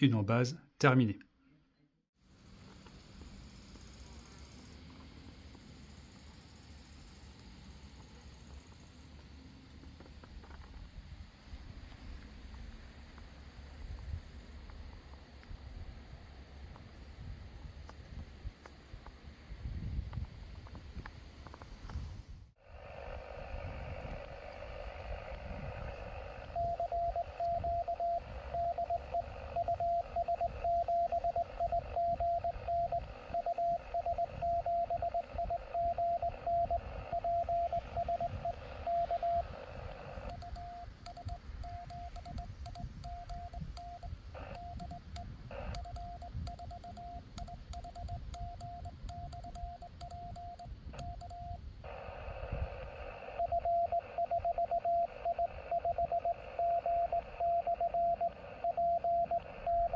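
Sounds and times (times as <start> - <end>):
radio band hiss: 22.6 - 46.4, 51.8 - 59.9
morse code tone: 26.4 - 52.0, 53.3 - 59.9.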